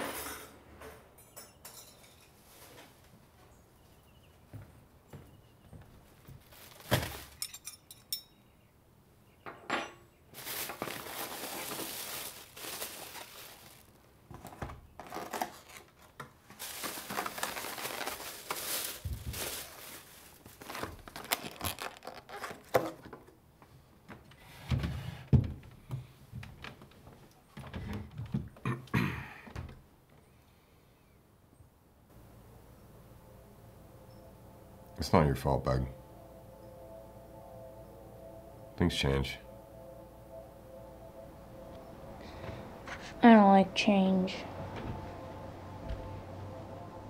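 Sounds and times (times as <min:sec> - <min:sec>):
plastic bag rustling: 0:06.0 - 0:07.6, 0:10.3 - 0:23.0.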